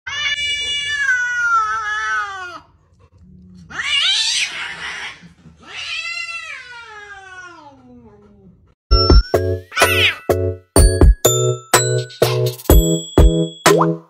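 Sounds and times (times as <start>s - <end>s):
cat screeching: 0.1s - 2.7s, 3.7s - 7.8s
cat yowling: 0.1s - 2.7s, 3.7s - 8.1s.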